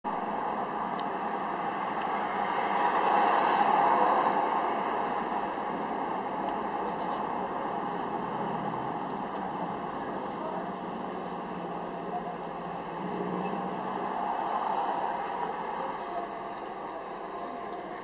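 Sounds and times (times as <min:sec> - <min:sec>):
car road and engine noise: 0:00.0 - 0:18.0.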